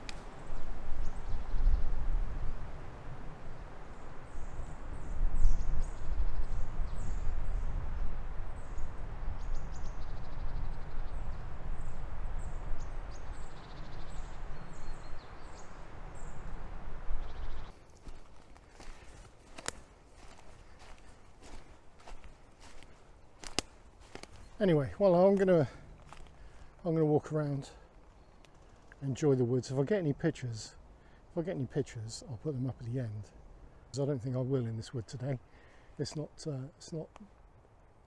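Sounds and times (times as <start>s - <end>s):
wind rumble on microphone: 0.0s - 17.7s
small birds chirping: 3.9s - 30.1s.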